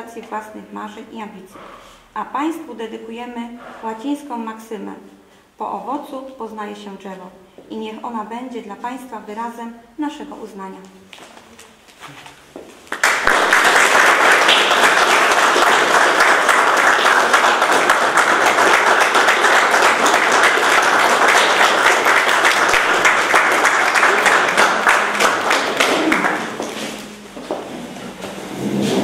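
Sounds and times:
people applauding: 12.8 - 27.2.

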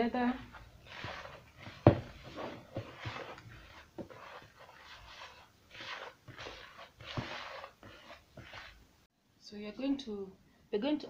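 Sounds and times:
hands swishing flour: 0.2 - 8.9.

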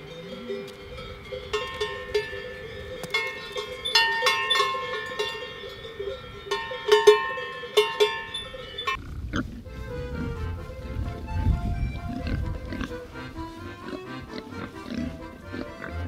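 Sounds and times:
cowbells clanking: 0.0 - 9.0.

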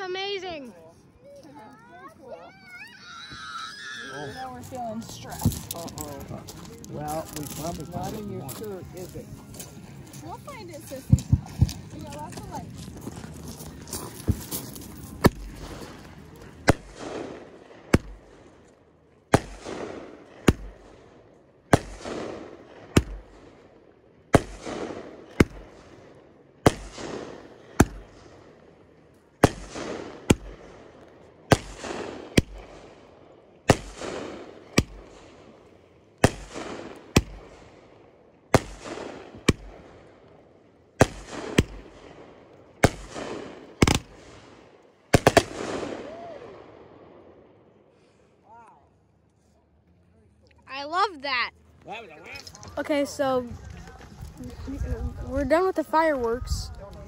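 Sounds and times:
firework bangs: 4.3 - 18.6, 19.3 - 23.7, 24.3 - 28.4, 29.4 - 35.6, 36.2 - 37.8, 38.5 - 40.1, 41.0 - 47.1.

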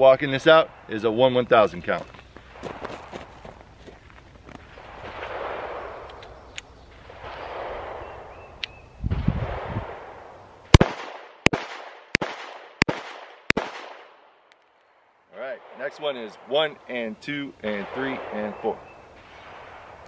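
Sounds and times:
pistol shots with echo: 4.6 - 8.4, 10.7 - 14.2, 17.6 - 20.0.

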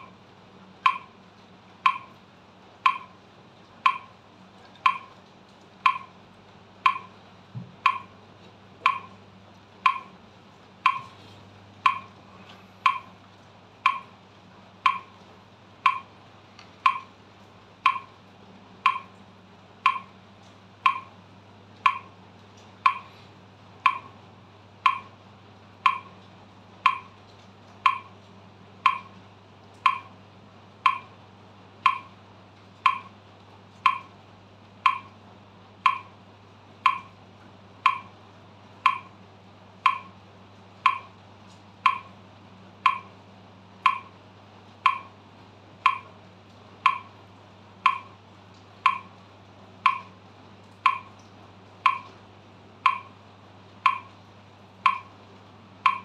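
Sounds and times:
metronome ticking: 0.8 - 1.2, 1.8 - 2.2, 2.8 - 3.2, 3.8 - 4.2, 4.8 - 5.2, 5.8 - 6.2, 6.8 - 7.2, 7.8 - 8.2, 8.8 - 9.2, 9.8 - 10.2, 10.8 - 11.2, 11.8 - 12.2, 12.8 - 13.2, 13.8 - 14.2, 14.8 - 15.2, 15.8 - 16.2, 16.8 - 17.2, 17.8 - 18.2, 18.8 - 19.2, 19.8 - 20.2, 20.8 - 21.2, 21.8 - 22.2, 22.8 - 23.2, 23.8 - 24.2, 24.8 - 25.2, 25.8 - 26.2, 26.8 - 27.2, 27.8 - 28.2, 28.8 - 29.2, 29.8 - 30.2, 30.8 - 31.2, 31.8 - 32.2, 32.8 - 33.2, 33.8 - 34.2, 34.8 - 35.2, 35.8 - 36.2, 36.8 - 37.2, 37.8 - 38.2, 38.8 - 39.2, 39.8 - 40.2, 40.8 - 41.2, 41.8 - 42.2, 42.8 - 43.2, 43.8 - 44.2, 44.8 - 45.2, 45.8 - 46.2, 46.8 - 47.2, 47.8 - 48.2, 48.8 - 49.2, 49.8 - 50.2, 50.8 - 51.2, 51.8 - 52.2, 52.8 - 53.2, 53.8 - 54.2, 54.8 - 55.2, 55.8 - 56.0.

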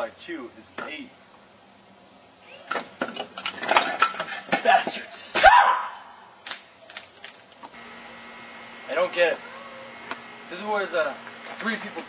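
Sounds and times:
person shouting: 5.3 - 6.2.

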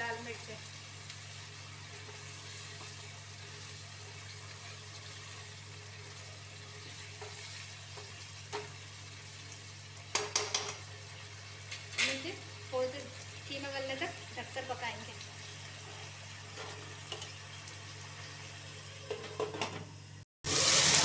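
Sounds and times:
gravy simmering and sizzling: 0.0 - 21.0
spatula scraping a pan: 1.9 - 8.7
spatula knocking on pan: 10.1 - 10.8.

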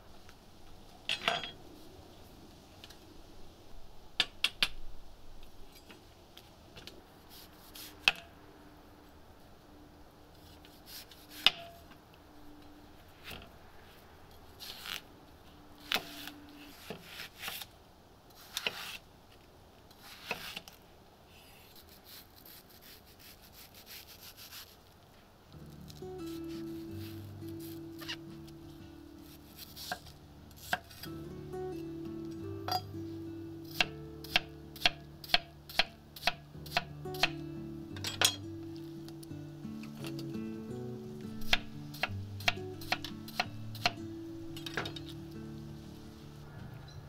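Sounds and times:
knife cutting melon on board: 18.4 - 19.0.

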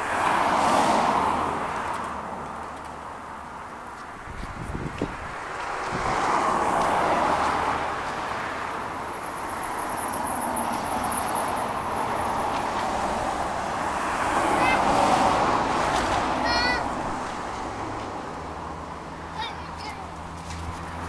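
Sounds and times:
cars passing: 0.0 - 21.0.

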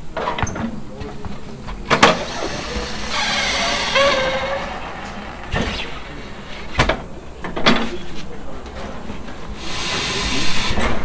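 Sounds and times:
air hissing: 2.0 - 7.2, 9.5 - 10.8
short squeak: 2.2 - 6.7.

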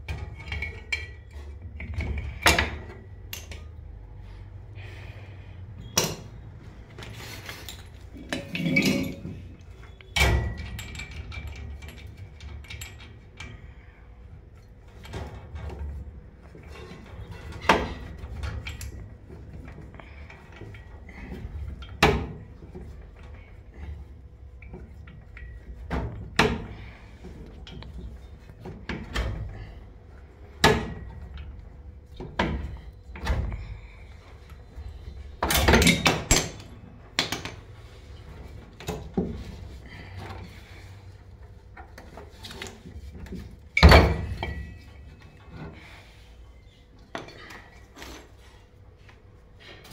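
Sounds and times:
metal tools clinking: 7.6 - 9.4.

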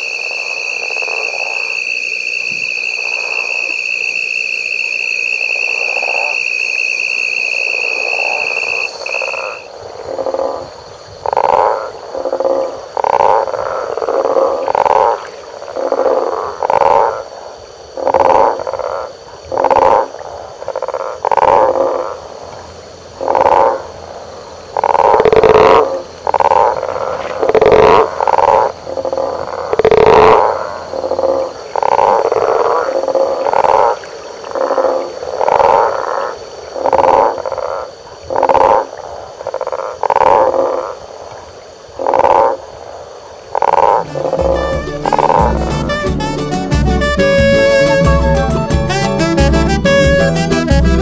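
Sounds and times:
frogs croaking: 0.0 - 45.8
high-pitched drone: 44.0 - 51.0.

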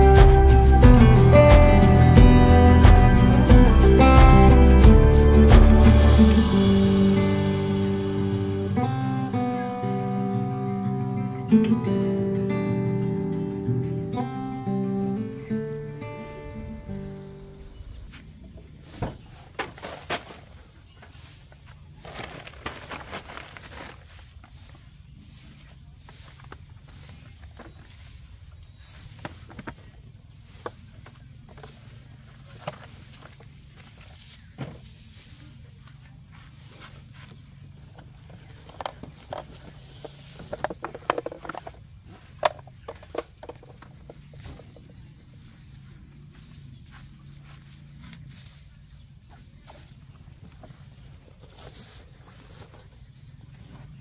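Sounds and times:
acoustic guitar note: 0.0 - 17.6
plastic cooler knocks and scrapes: 19.0 - 20.6
plastic crinkling and rustling: 19.5 - 24.7.

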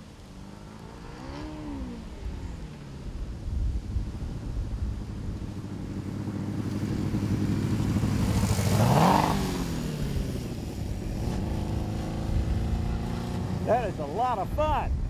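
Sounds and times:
race car driving by: 6.6 - 14.6.

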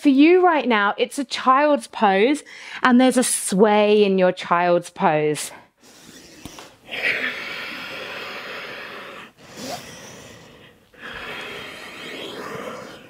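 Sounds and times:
woman breathing deeply: 7.7 - 13.0.

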